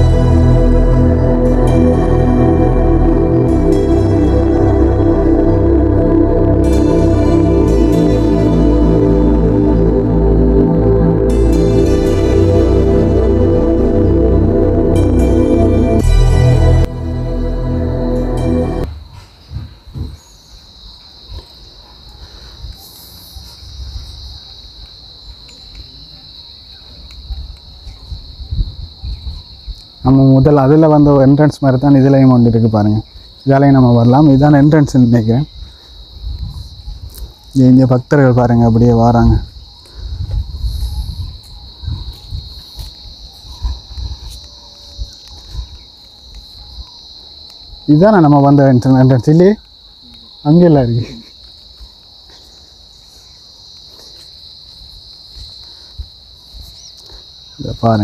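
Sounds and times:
low rumble: 0.0s - 18.9s
insects droning: 17.2s - 58.0s.

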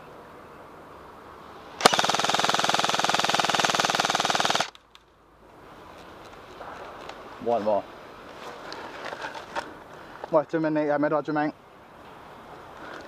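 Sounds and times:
airsoft rifle full-auto burst: 1.8s - 4.8s.

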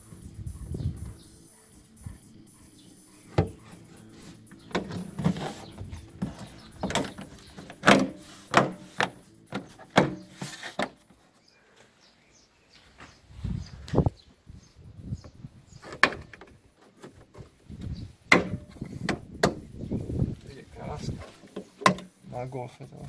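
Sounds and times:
plastic scraping: 4.6s - 11.0s.

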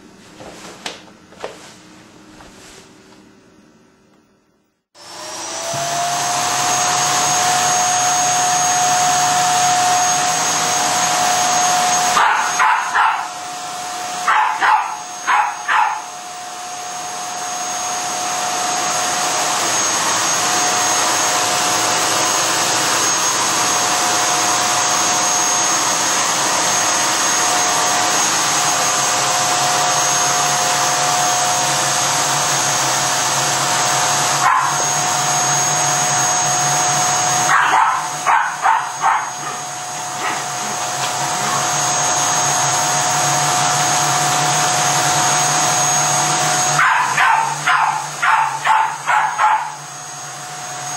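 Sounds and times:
vacuum cleaner whining: 0.0s - 50.9s
puppy barking: 12.1s - 13.4s, 14.2s - 16.1s, 34.4s - 34.9s, 37.4s - 40.8s, 46.7s - 49.8s.

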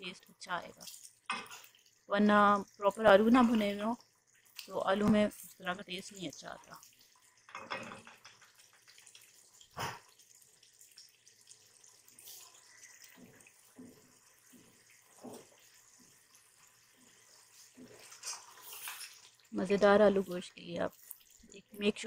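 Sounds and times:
food sizzling and bubbling in a pot: 0.0s - 22.0s
spatula stirring: 6.8s - 9.8s, 10.4s - 22.0s.

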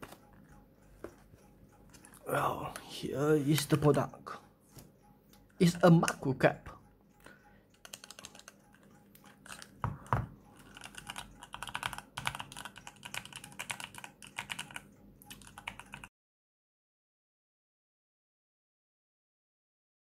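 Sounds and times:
mechanical keys clacking: 7.7s - 9.8s.

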